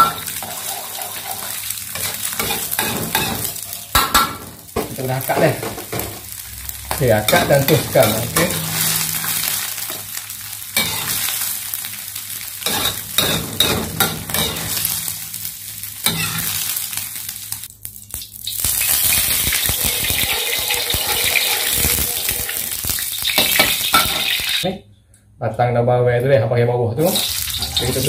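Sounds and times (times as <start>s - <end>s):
oil hissing in a wok: 0.0s - 3.9s, 18.2s - 24.6s, 27.1s - 28.0s
metal utensils scraping and clinking: 0.0s - 4.0s, 6.9s - 10.0s, 10.8s - 11.4s, 12.6s - 14.9s, 19.8s - 22.7s
egg sizzling in a wok: 0.0s - 24.6s, 27.1s - 28.0s.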